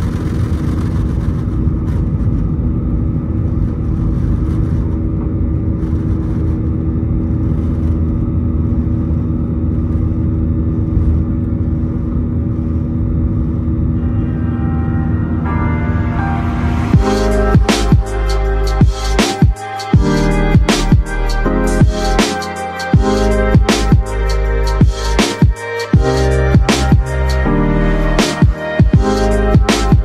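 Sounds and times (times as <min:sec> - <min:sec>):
jet engines rumbling in cabin: 0:00.0 - 0:17.4.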